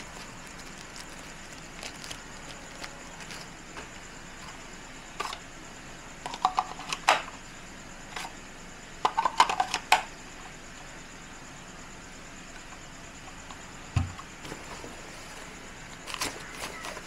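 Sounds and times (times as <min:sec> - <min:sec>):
plastic knocks: 0:13.9 - 0:14.2.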